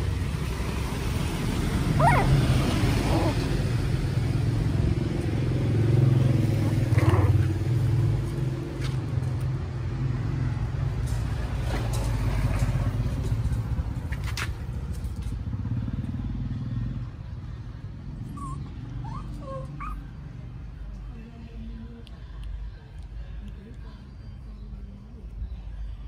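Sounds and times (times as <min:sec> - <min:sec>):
vehicle engine rumble: 0:00.0 - 0:26.0
puppy whimpers: 0:02.0 - 0:03.6, 0:18.2 - 0:20.1.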